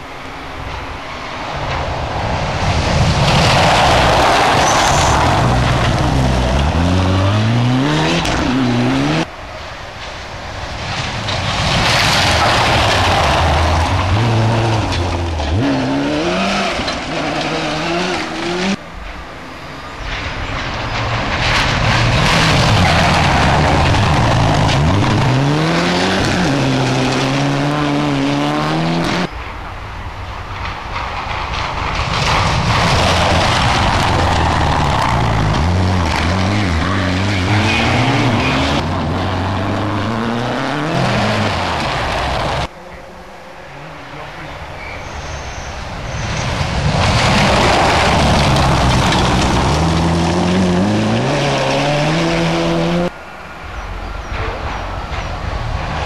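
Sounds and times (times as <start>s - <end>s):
gravel hissing: 0.0s - 43.0s, 44.1s - 52.4s
rally car engines revving: 2.3s - 9.3s, 10.8s - 18.8s, 21.1s - 29.3s, 31.7s - 42.7s, 44.1s - 53.2s.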